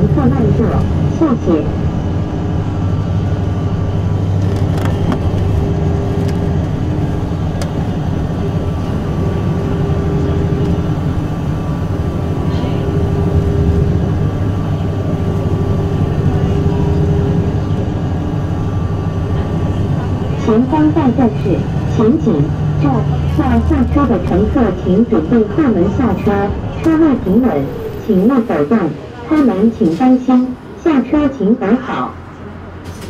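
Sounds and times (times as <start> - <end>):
bus drive-train drone: 0.0 - 33.0.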